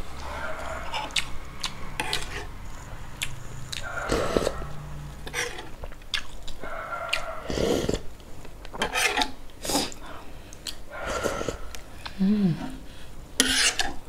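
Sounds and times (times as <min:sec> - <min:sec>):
chewing noodles: 0:00.2 - 0:12.2
slurping broth: 0:02.0 - 0:02.6, 0:03.2 - 0:06.3.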